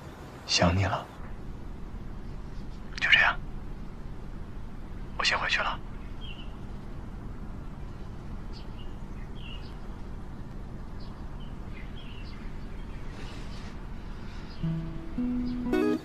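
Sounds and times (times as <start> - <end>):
low background hum: 0.0 - 16.0
small birds chirping: 4.8 - 16.0.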